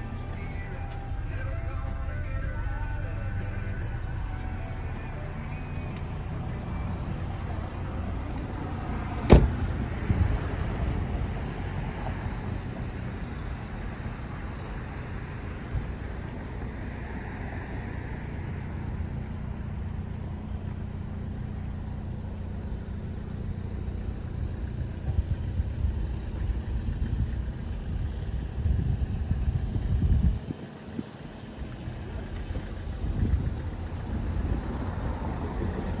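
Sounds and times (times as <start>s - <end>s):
road traffic rumble: 0.0s - 36.0s
gusting wind: 8.9s - 12.6s, 25.1s - 31.8s, 32.5s - 36.0s
car door slamming: 9.2s - 10.2s.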